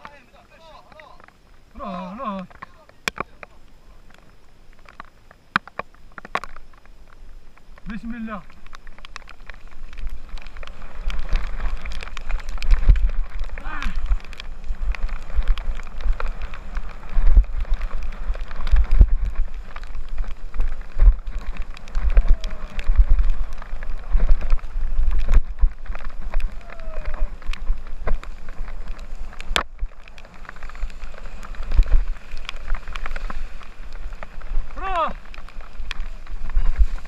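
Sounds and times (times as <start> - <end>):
bike rattling: 2.2 - 37.0
wind buffeting microphone: 8.7 - 37.0.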